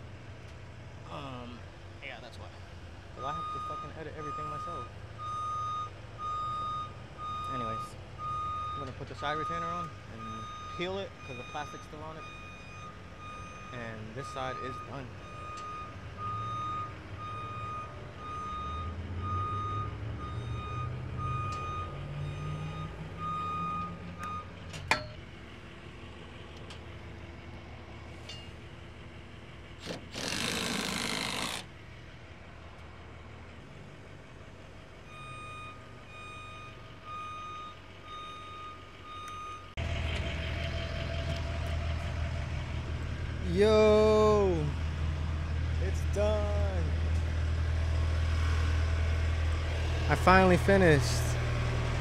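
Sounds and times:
back-up alarm beeping: 3.2s - 24.5s, 35.1s - 39.8s
engine running: 17.3s - 35.1s, 38.9s - 52.0s.

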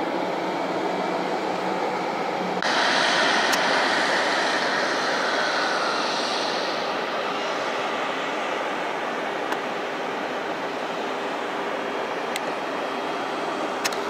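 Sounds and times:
jet engines whining: 0.0s - 14.0s.

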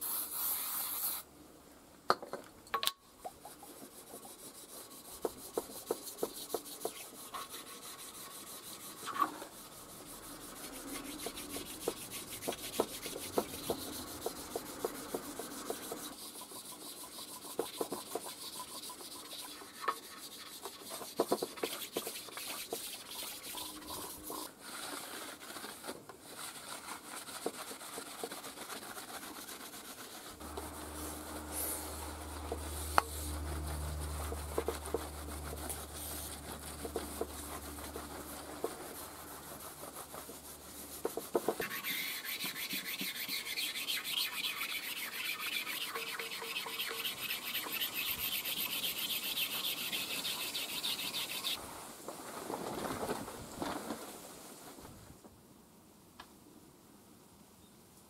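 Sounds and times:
stone scraping metal surface: 5.3s - 24.5s, 30.3s - 51.6s
low hum: 30.4s - 40.8s.

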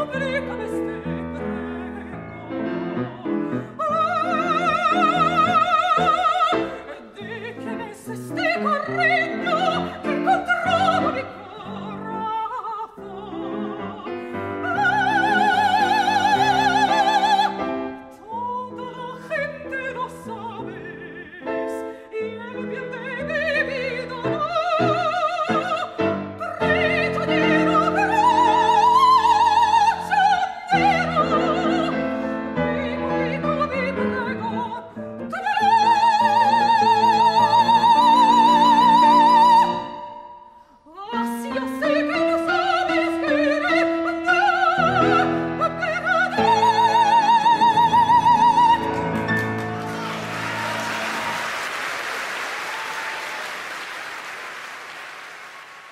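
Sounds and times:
operatic singing: 0.0s - 40.2s
piano accompaniment: 0.0s - 40.4s, 41.2s - 53.2s
audience applause: 48.9s - 55.9s.

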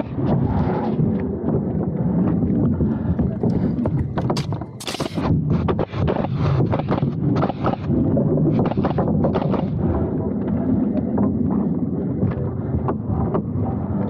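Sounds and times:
steady low rumble: 0.0s - 14.0s
nail gun firing: 4.4s - 5.2s.

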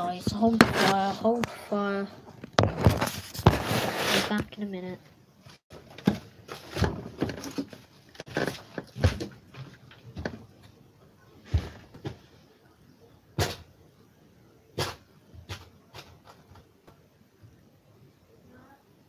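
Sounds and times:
knocks and thumps of objects moved: 0.2s - 1.6s, 2.2s - 4.6s, 5.5s - 10.8s, 11.4s - 12.3s.

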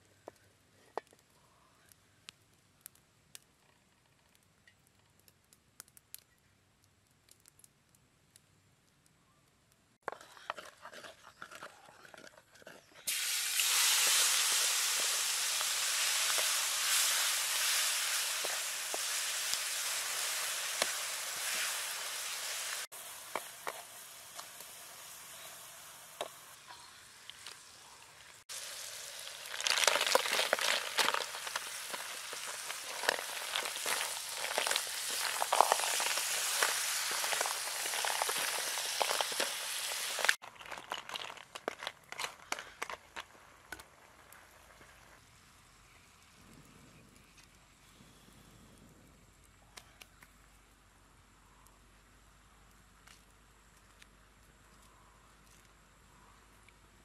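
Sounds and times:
shells clicking and spatula scraping: 10.0s - 13.1s, 29.6s - 43.9s
hot oil sizzling in a wok: 13.1s - 40.4s.

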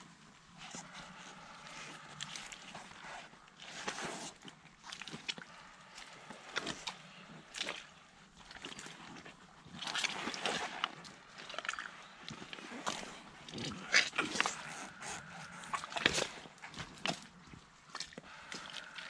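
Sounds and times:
rubber boots squelching in mud: 0.5s - 19.0s.

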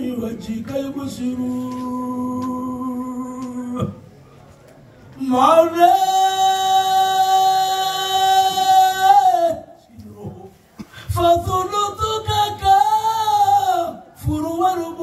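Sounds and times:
man chanting into a microphone: 5.2s - 15.0s.

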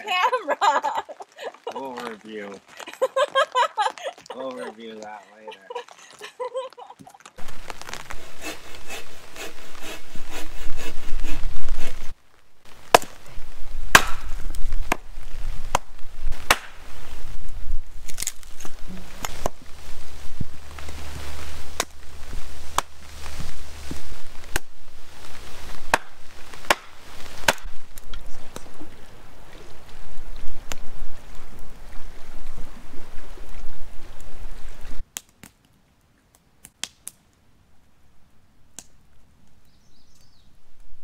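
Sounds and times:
axe chopping wood: 12.9s - 13.2s, 13.9s - 15.0s, 15.7s - 16.8s, 25.9s - 27.7s.

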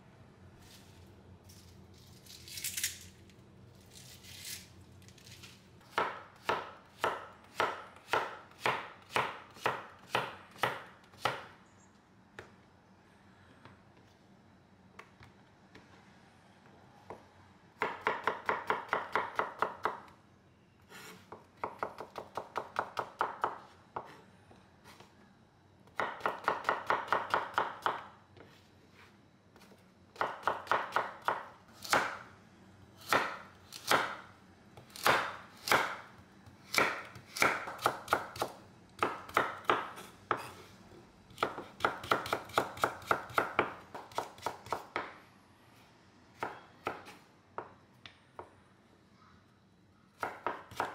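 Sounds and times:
knife chopping on wooden board: 5.9s - 11.5s, 33.1s - 34.2s, 34.9s - 36.1s, 36.7s - 40.5s, 41.4s - 45.1s, 50.2s - 50.9s.

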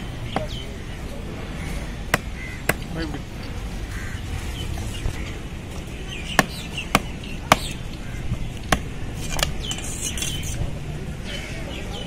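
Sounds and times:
knife chopping on wooden block: 6.4s - 7.8s.

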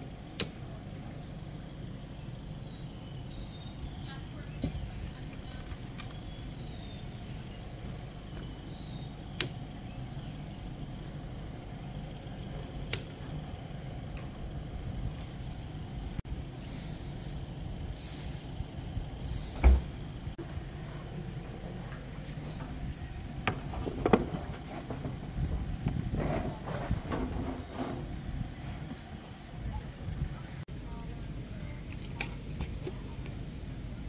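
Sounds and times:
steady low rumble: 0.0s - 34.0s
metal windscreen panels knocking: 23.4s - 28.2s.

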